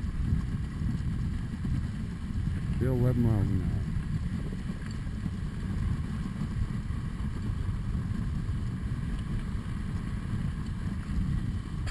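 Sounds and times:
dog sled running over snow: 0:00.0 - 0:11.9
wind buffeting microphone: 0:00.0 - 0:11.9.

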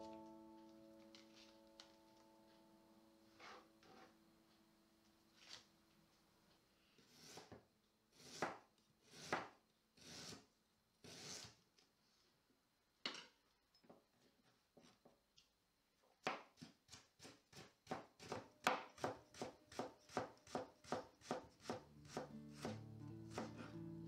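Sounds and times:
background music: 0:00.0 - 0:03.3, 0:21.8 - 0:24.0
knife chopping on cutting board: 0:08.2 - 0:10.4, 0:16.2 - 0:23.8.

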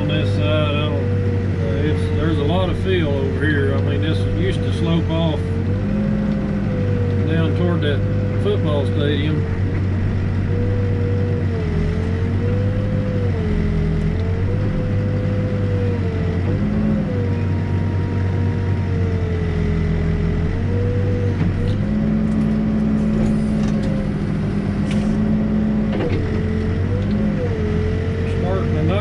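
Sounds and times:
diesel engine running: 0:00.0 - 0:29.0
hydraulic whine: 0:20.2 - 0:29.0.

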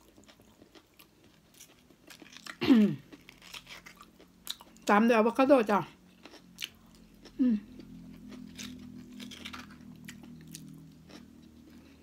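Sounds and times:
wet chewing and smacking: 0:06.1 - 0:11.8
person humming: 0:07.4 - 0:07.8.

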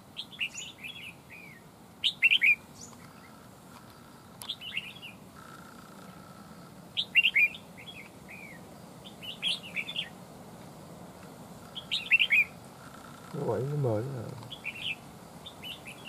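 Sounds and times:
birds singing whistled phrases: 0:00.1 - 0:03.3, 0:04.4 - 0:05.2, 0:07.0 - 0:10.2, 0:11.6 - 0:13.2, 0:14.4 - 0:16.0.

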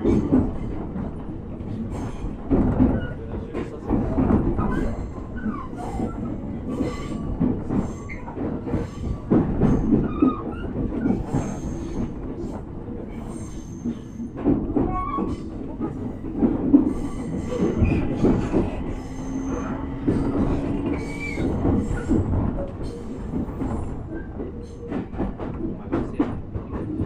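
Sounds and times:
train wheels rumbling on rail: 0:00.0 - 0:27.0
knocks and rattles: 0:00.1 - 0:05.5, 0:14.3 - 0:27.0
high wheel squeals: 0:20.9 - 0:22.1.

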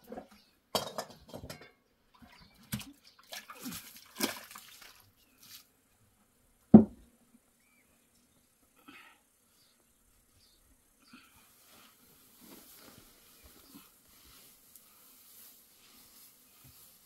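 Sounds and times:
water splashing and sloshing: 0:02.1 - 0:05.7
knocks: 0:06.8 - 0:07.0.

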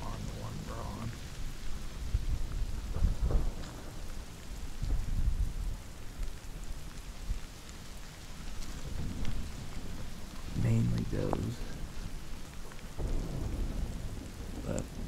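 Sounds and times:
steady hiss: 0:00.0 - 0:15.0
wind buffeting microphone: 0:00.0 - 0:15.0.

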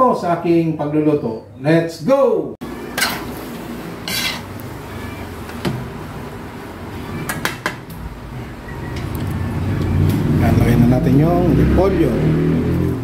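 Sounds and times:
metal spatula scraping a wok: 0:03.0 - 0:03.4, 0:04.0 - 0:04.5.

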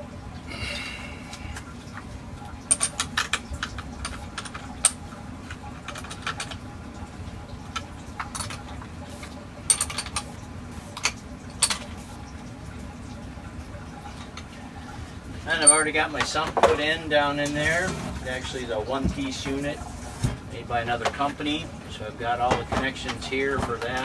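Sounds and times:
wrench clinking on battery terminal: 0:15.6 - 0:16.0.

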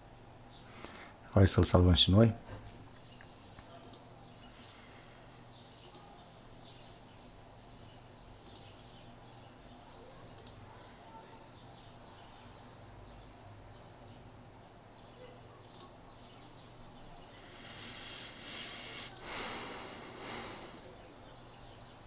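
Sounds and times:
computer mouse double clicks: 0:03.8 - 0:04.0, 0:05.8 - 0:06.1, 0:10.4 - 0:10.6, 0:15.7 - 0:15.9.

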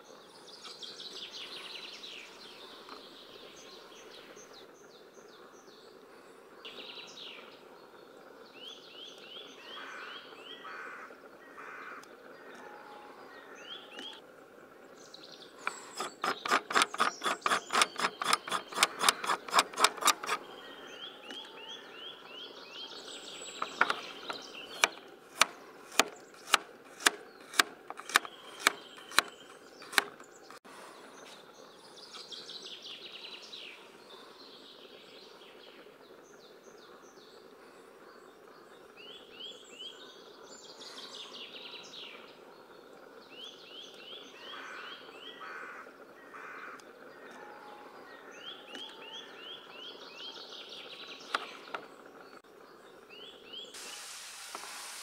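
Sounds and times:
birds chirping: 0:00.0 - 0:55.0
knife chopping on plastic board: 0:23.6 - 0:29.3.

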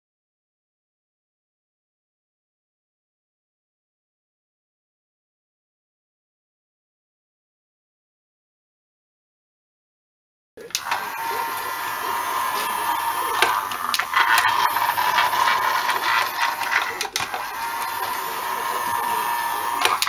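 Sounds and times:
model train whir: 0:10.6 - 0:20.0.

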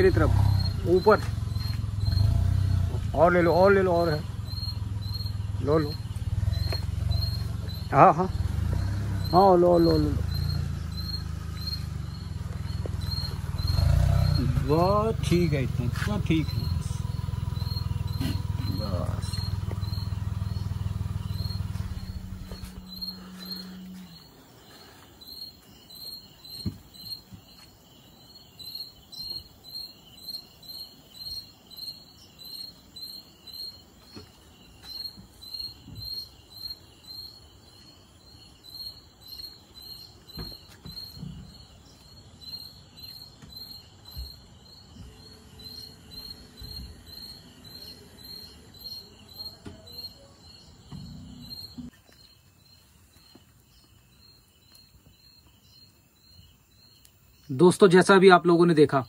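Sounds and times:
crickets chirping: 0:00.0 - 0:59.0
soft low thumps: 0:10.1 - 0:15.0, 0:15.7 - 0:24.3.

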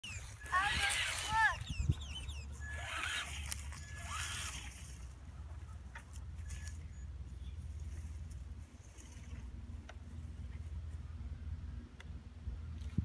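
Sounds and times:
toy truck motor whine: 0:00.0 - 0:05.1
tyres on grass: 0:00.0 - 0:11.2.

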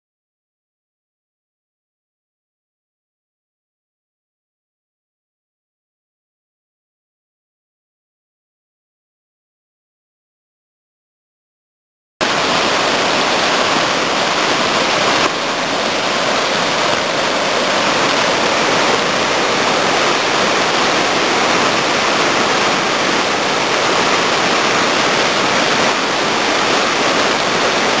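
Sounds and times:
rush of falling water: 0:12.2 - 0:28.0.

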